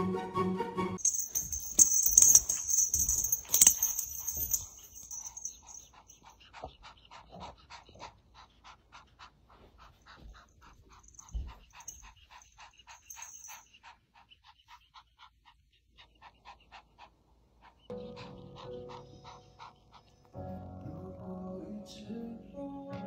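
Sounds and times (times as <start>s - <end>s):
kitten panting rapidly: 3.8s - 20.2s.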